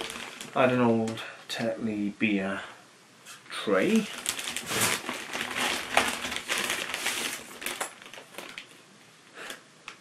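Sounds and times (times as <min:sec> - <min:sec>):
plastic bag rustling: 0:00.0 - 0:00.9, 0:03.8 - 0:08.8.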